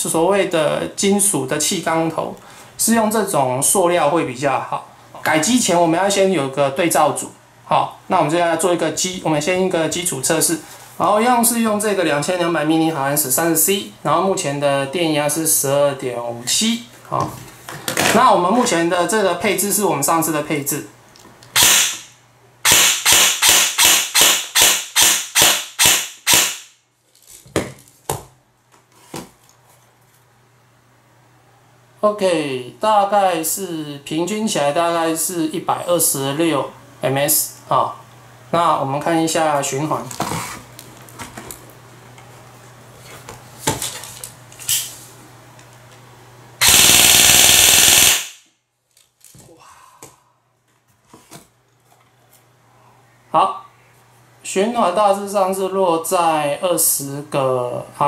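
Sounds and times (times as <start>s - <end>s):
airsoft rifle shots: 21.6s - 26.8s, 46.6s - 48.4s.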